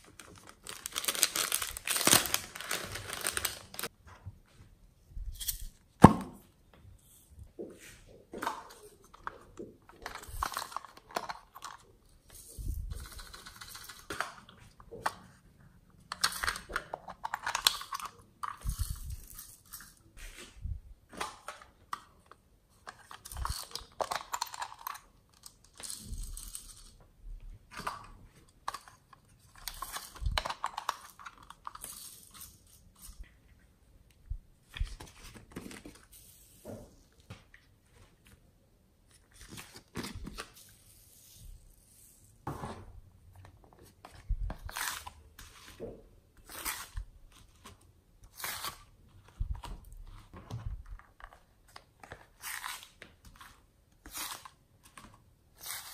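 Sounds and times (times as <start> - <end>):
plastic containers clicking and rattling: 16.1 - 18.8.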